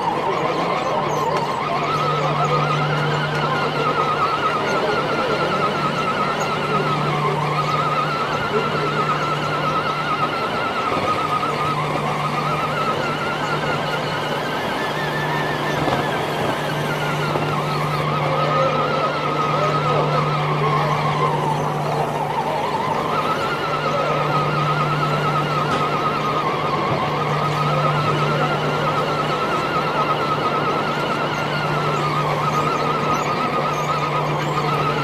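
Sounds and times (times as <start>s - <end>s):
electric motor and gearbox whine: 0.0s - 35.0s.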